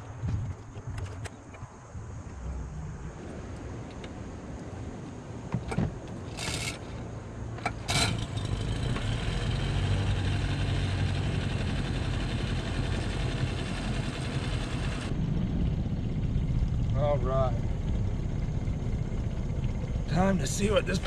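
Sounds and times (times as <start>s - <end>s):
starter cord rasps: 6.3s - 7.0s
outboard motor idling: 7.7s - 21.0s.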